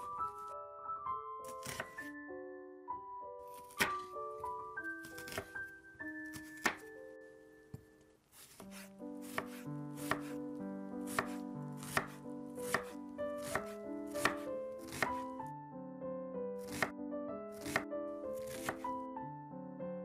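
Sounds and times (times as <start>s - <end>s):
piano music: 0.0s - 20.0s
knife chopping on wooden board: 1.6s - 2.0s, 3.6s - 5.7s, 6.3s - 6.9s, 7.7s - 10.4s, 11.1s - 15.3s, 16.6s - 16.9s, 17.6s - 17.8s, 18.4s - 18.8s.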